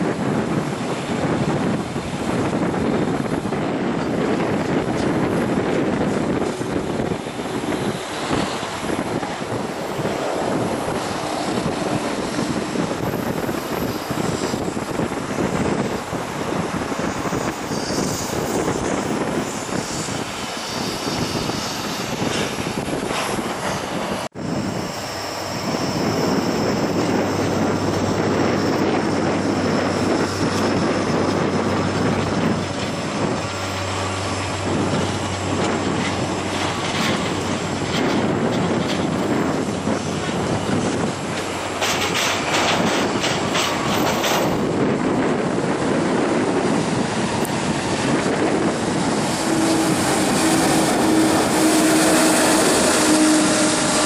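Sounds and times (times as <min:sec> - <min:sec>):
wind on microphone: 0:00.0 - 0:54.0
jet engines running: 0:39.6 - 0:54.0.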